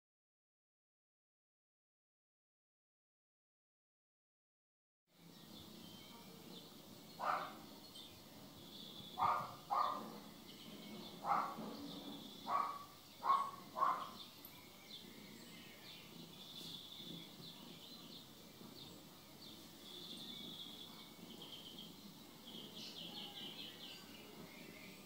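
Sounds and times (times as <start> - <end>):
faint bird chirps: 5.2 - 25.0.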